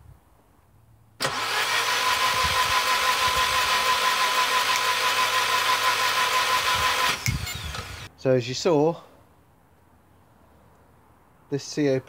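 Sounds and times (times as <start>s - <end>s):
car engine cranking with starter: 1.2s - 8.1s.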